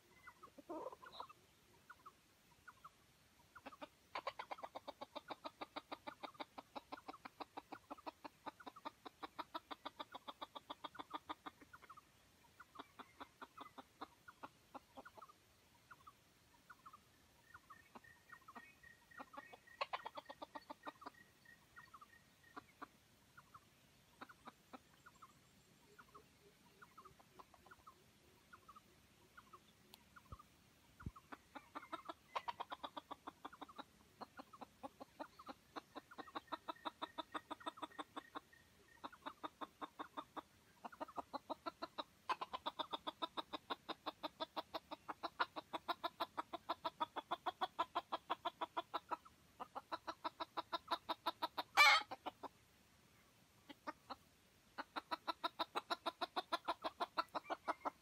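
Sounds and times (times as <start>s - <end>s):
chicken squawk: 0.0s - 2.9s, 3.5s - 12.0s, 31.0s - 52.5s, 54.8s - 58.0s
chicken clucking: 0.0s - 52.7s, 53.6s - 58.0s.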